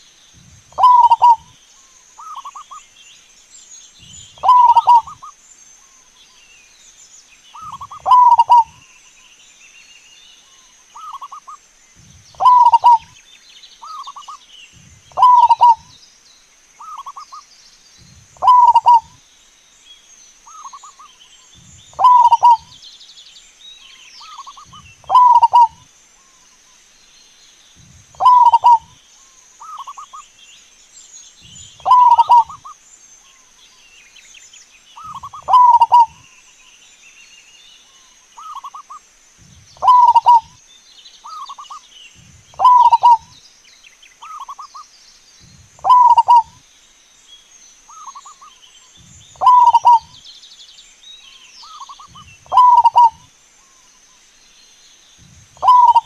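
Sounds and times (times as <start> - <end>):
small birds chirping: 0.0 - 56.0
dove cooing: 0.7 - 1.5, 4.4 - 5.3, 7.6 - 8.8, 12.4 - 13.1, 15.1 - 15.9, 18.4 - 19.1, 21.9 - 22.7, 24.3 - 25.8, 28.2 - 29.0, 31.8 - 32.7, 35.0 - 36.2, 39.8 - 40.5, 42.5 - 43.3, 45.8 - 46.6, 49.4 - 50.2, 51.8 - 53.2, 55.6 - 56.0.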